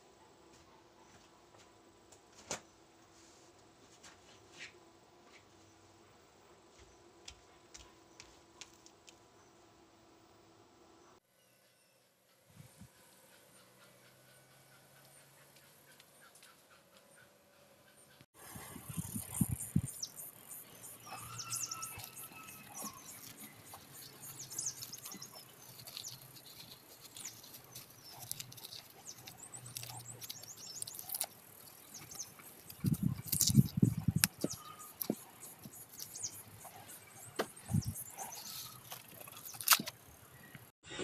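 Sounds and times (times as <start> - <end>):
hands scraping soil off roots: 20.6 - 40.0.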